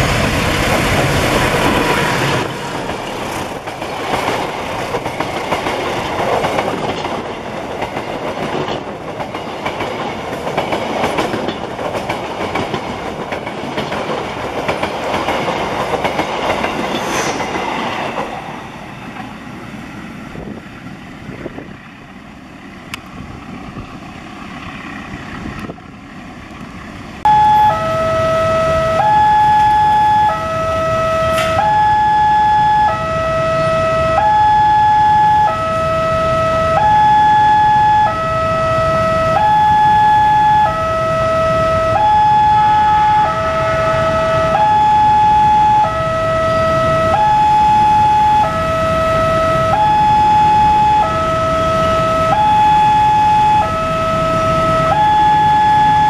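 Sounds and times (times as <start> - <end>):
level crossing two-tone alarm: 27.3 - 56.0.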